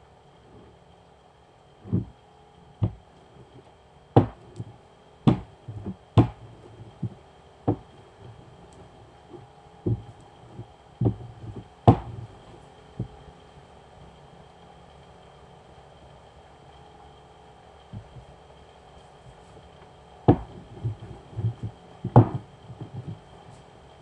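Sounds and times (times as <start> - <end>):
rolling pin knocking on board: 2.8 - 3.0, 4.2 - 4.7, 5.3 - 8.4, 9.9 - 10.2, 11.0 - 13.2, 18.0 - 18.3, 20.3 - 23.2.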